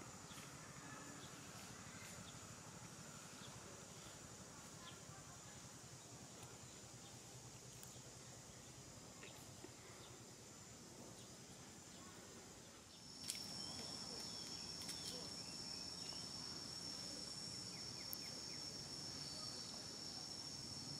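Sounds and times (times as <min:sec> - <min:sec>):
faint high hiss: 0:00.0 - 0:20.9
high-pitched insect trill: 0:12.9 - 0:20.9.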